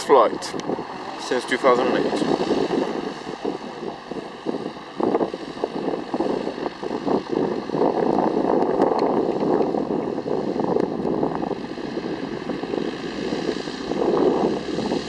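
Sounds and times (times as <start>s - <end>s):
propeller plane engine: 0.0s - 15.0s.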